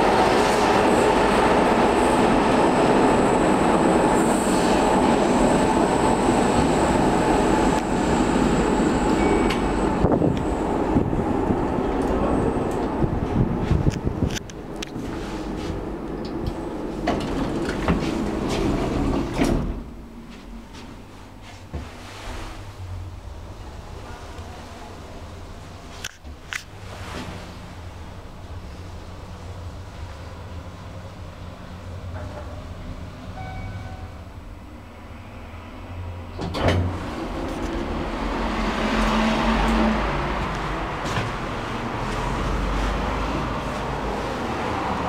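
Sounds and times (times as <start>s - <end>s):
lift doors sliding open: 0.0s - 20.0s, 36.2s - 45.0s
lift doors sliding shut: 14.9s - 20.0s, 36.3s - 42.4s.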